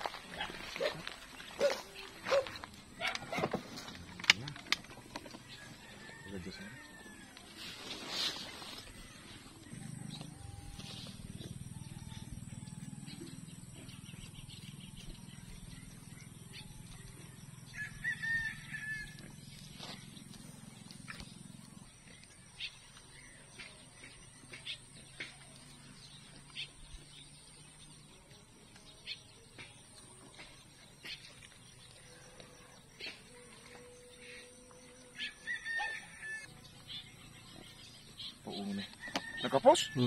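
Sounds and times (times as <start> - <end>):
rooster crowing: 5.5 - 7.8, 17.7 - 19.3, 35.1 - 36.6, 38.7 - 40.0.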